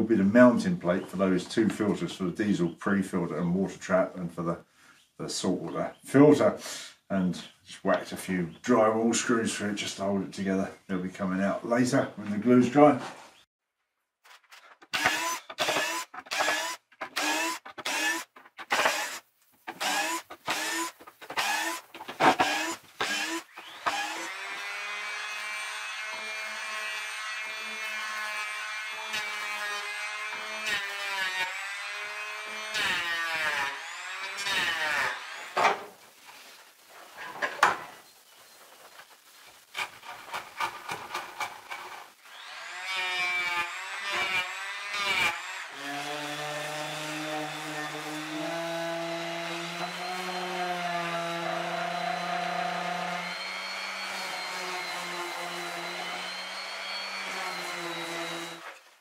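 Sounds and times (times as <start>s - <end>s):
power sander whining: 14.8s - 35.6s, 42.2s - 58.8s
cordless drill in short bursts: 14.9s - 19.2s, 19.8s - 24.3s.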